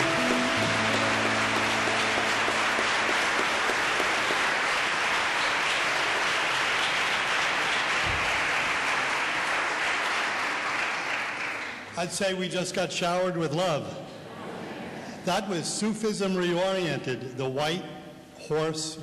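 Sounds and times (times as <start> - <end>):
held choir chord: 0.0 - 4.7
audience applauding: 0.0 - 12.0.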